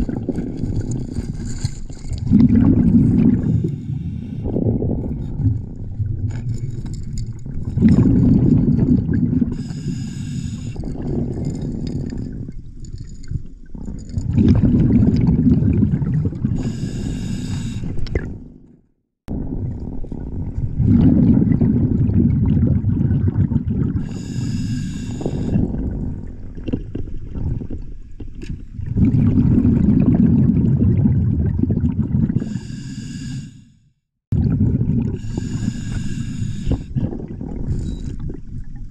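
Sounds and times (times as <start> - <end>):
exhaled bubbles rumbling: 0.0 - 18.7, 19.3 - 32.7, 34.3 - 38.9
regulator inhale hiss: 3.4 - 4.5, 9.6 - 10.8, 16.6 - 18.1, 24.0 - 25.6, 32.4 - 33.8, 35.2 - 37.0.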